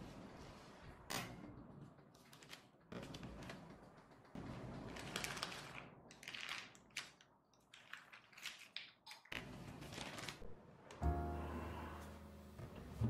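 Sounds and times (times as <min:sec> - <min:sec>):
baking paper rustling and crinkling: 0:04.8 - 0:10.5.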